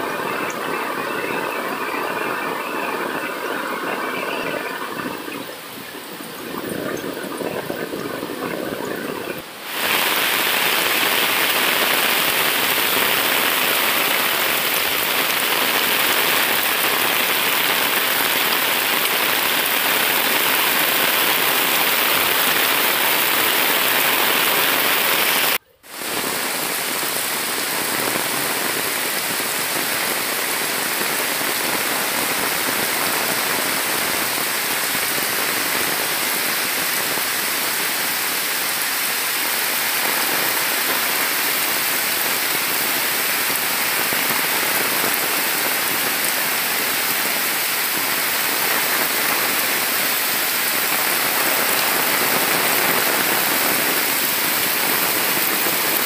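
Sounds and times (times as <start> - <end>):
heavy rain pouring: 0.0 - 56.0.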